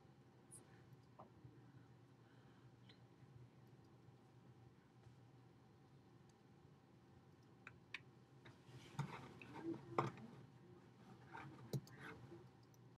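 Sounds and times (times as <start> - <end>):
faint clicks and rustles: 7.3 - 13.0.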